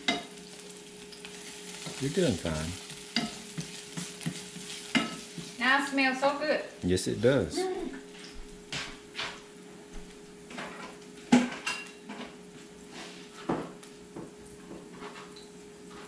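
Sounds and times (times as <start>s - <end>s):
dishes and cutlery clinking: 3.1s - 5.2s, 10.5s - 12.4s.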